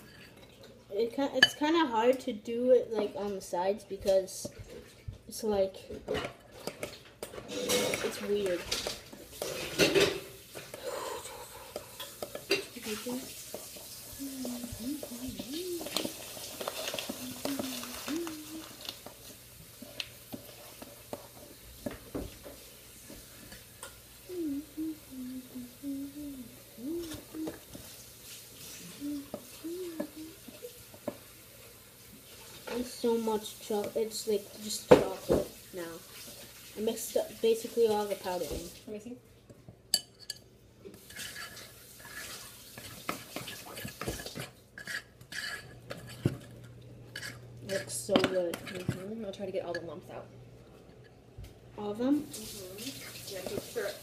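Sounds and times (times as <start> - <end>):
spoon stirring batter in bowl: 11.7 - 24.0, 39.5 - 50.0.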